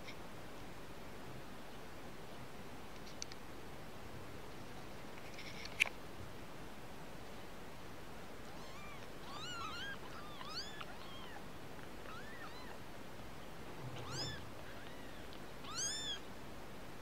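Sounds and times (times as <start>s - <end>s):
kittens mewing: 8.6s - 11.4s, 12.0s - 12.8s, 13.9s - 16.2s.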